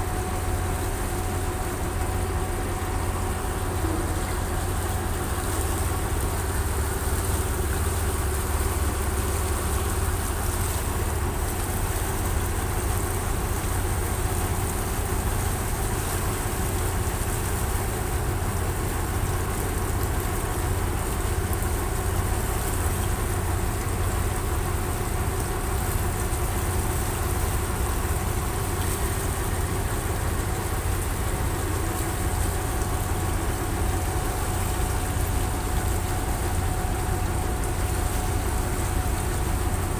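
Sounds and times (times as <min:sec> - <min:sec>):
boat engine droning: 0:00.0 - 0:39.9.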